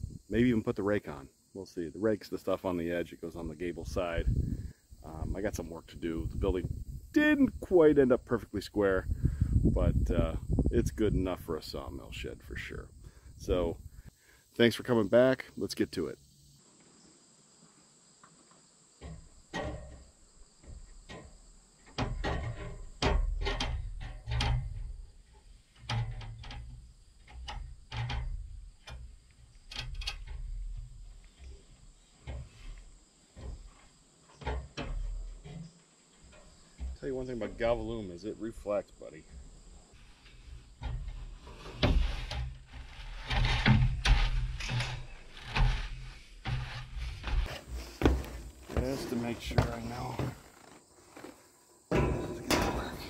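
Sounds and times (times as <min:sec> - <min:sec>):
high insect trill: 0:00.0 - 0:53.0
heavy thuds on metal roof: 0:46.5 - 0:50.5
sheet metal knocking and rattling: 0:51.9 - 0:53.0.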